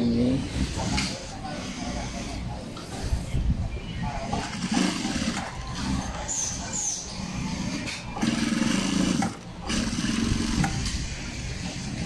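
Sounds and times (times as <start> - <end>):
sewing machine stitching: 4.2 - 6.2, 7.7 - 11.0.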